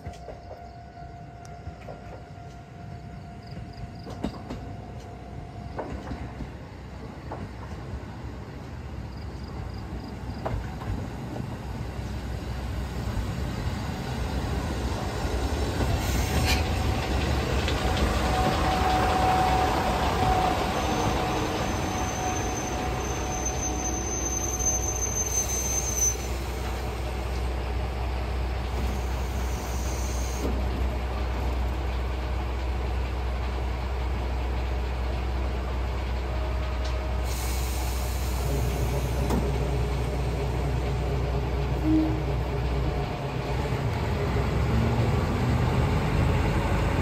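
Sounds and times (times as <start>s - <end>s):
train brakes squealing: 15.2s - 17.1s, 17.8s - 27.4s, 28.7s - 30.7s, 36.5s - 40.1s.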